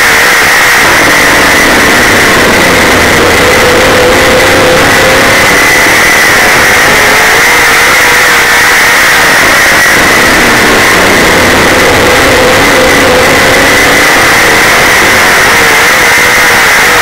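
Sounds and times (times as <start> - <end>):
race car engine running hard: 0.0 - 17.0.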